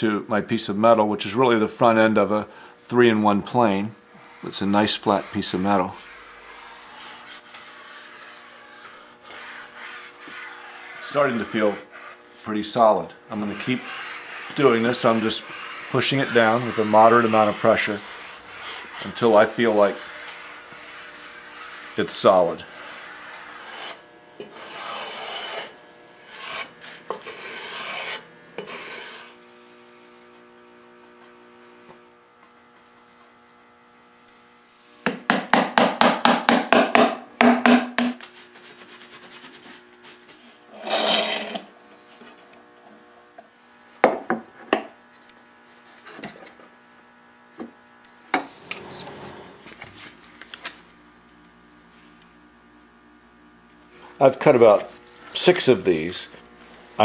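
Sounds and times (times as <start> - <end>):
hand file rasping on wood: 4.1 - 12.4, 13.3 - 29.4
rubbing and rustling: 4.1 - 12.5, 13.3 - 22.3, 38.2 - 40.4.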